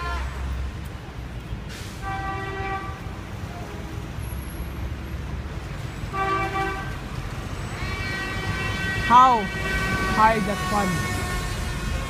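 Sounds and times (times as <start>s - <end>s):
street traffic rumble: 0.0s - 12.0s
vehicle horns honking: 2.0s - 3.2s, 6.1s - 12.0s.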